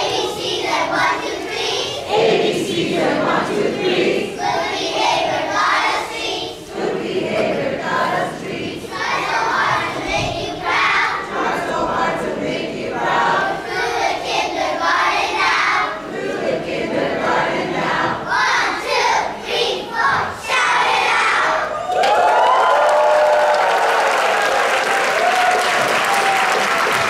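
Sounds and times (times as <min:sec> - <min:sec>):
children chanting: 0:00.0 - 0:21.8.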